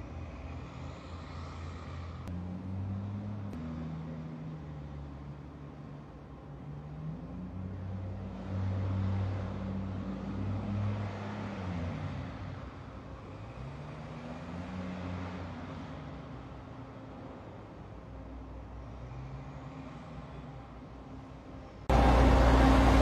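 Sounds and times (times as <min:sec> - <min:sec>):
hovercraft engines humming: 0:21.7 - 0:23.0.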